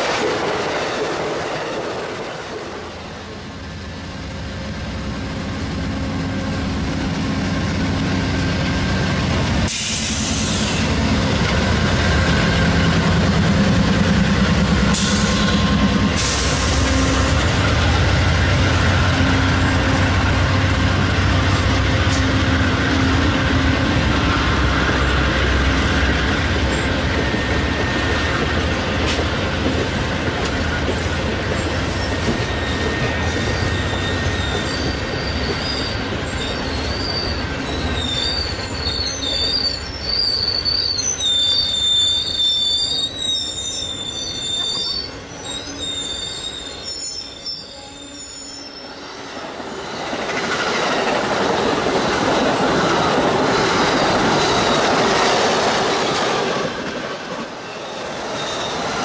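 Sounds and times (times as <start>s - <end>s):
train cars rolling past: 0.0s - 59.0s
high-pitched wheel squeal: 31.4s - 49.2s, 57.6s - 59.0s.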